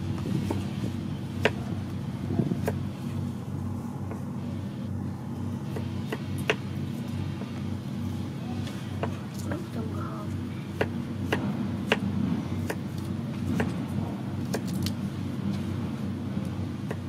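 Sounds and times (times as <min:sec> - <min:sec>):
steady low hum: 0:00.0 - 0:17.0
knife chopping on wooden board: 0:00.4 - 0:00.6, 0:01.4 - 0:01.7, 0:02.4 - 0:02.8, 0:10.7 - 0:12.9, 0:13.5 - 0:13.8.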